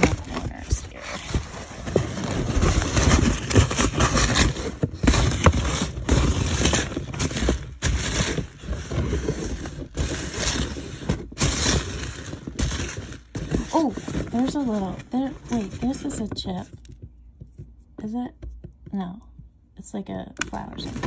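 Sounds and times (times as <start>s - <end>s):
foam packing beads rustling: 0.0s - 16.7s.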